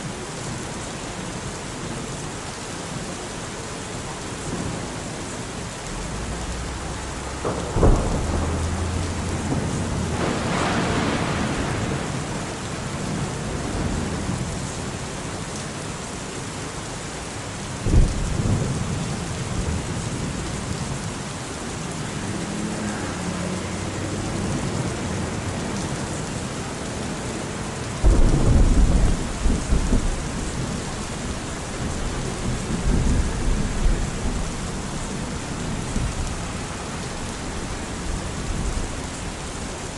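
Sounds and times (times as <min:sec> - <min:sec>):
falling rain hiss: 0:00.0 - 0:39.9
thunder rumbling: 0:05.9 - 0:14.6, 0:17.8 - 0:21.2, 0:28.0 - 0:39.9.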